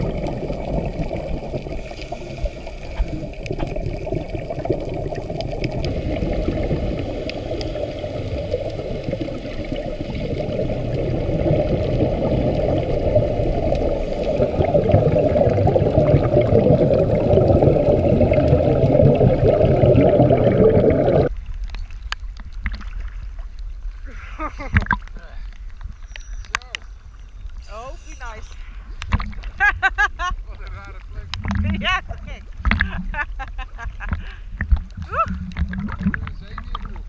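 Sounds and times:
choppy water splashing: 0:00.0 - 0:37.0
heavy rain heard underwater: 0:00.0 - 0:37.0.

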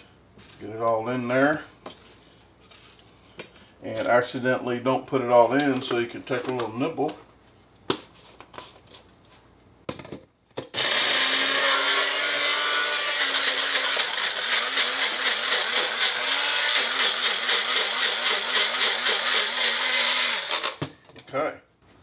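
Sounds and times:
blender clicks: 0:10.6 - 0:20.8
blender motor running: 0:10.8 - 0:20.8.

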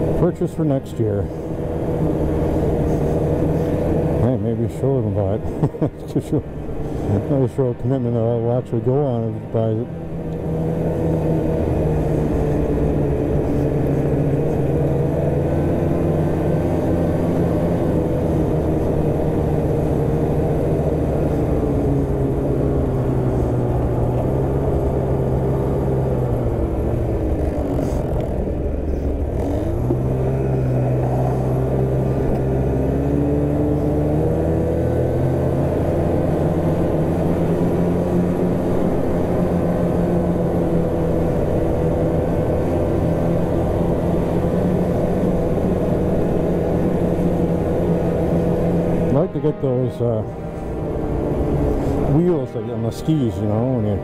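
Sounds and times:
snowmobile engine running: 0:00.0 - 0:54.0.

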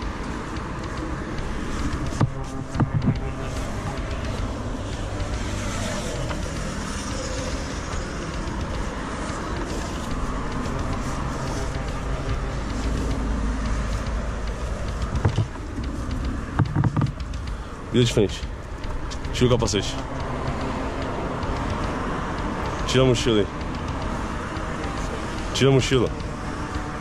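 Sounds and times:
sharp knocks: 0:00.0 - 0:05.5, 0:13.6 - 0:17.7
road traffic: 0:00.0 - 0:27.0
vehicle passing: 0:00.0 - 0:27.0.

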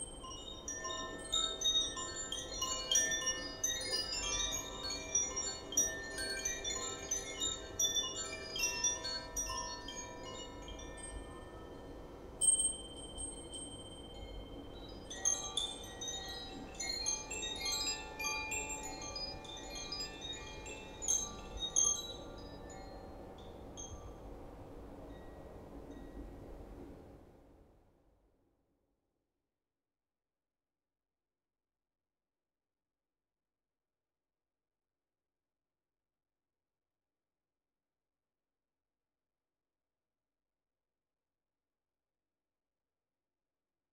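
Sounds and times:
wind chimes ringing: 0:00.0 - 0:26.7.

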